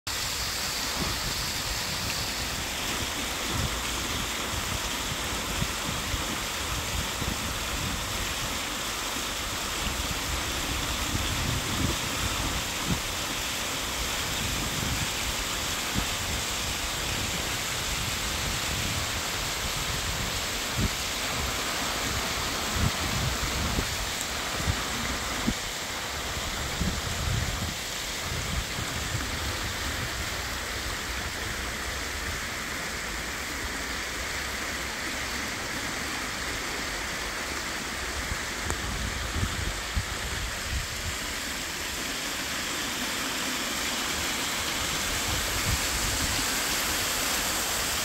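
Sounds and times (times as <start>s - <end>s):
water rushing down spillway: 0.1s - 48.0s
wind buffeting microphone: 9.8s - 13.3s, 14.0s - 31.4s, 38.4s - 41.4s, 44.8s - 46.6s.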